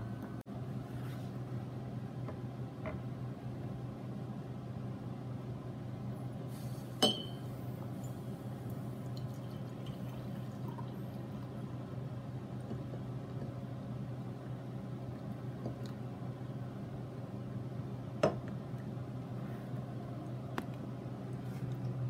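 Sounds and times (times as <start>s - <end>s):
glass clink: 7.0s - 8.2s
coffee pouring into a mug: 8.1s - 11.6s.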